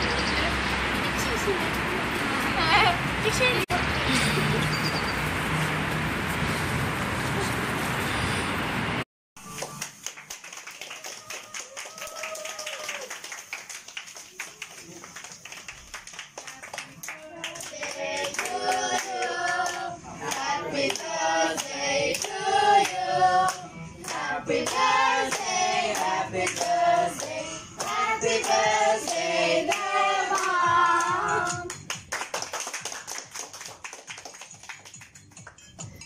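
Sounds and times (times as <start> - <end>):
people clapping in time: 9.4 - 36.0
group singing birthday song: 16.5 - 31.8.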